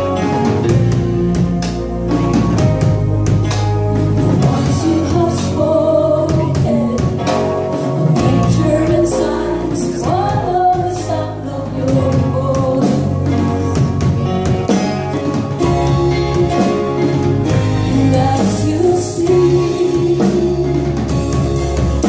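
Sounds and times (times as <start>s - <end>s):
drum kit: 0.0s - 22.0s
electric bass: 0.0s - 22.0s
keyboard: 0.0s - 22.0s
women singing: 4.4s - 7.4s, 8.1s - 13.4s, 17.8s - 21.0s.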